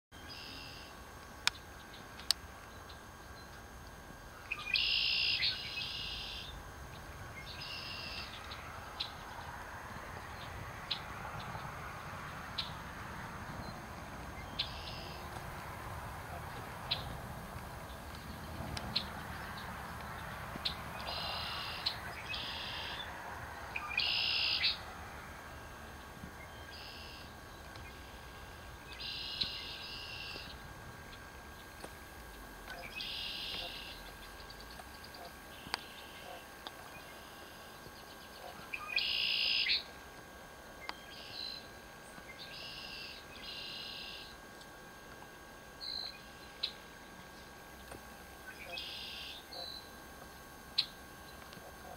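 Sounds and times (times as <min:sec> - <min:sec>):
animal buzzy trills: 0:04.3 - 0:11.4, 0:12.2 - 0:39.9, 0:48.2 - 0:51.9.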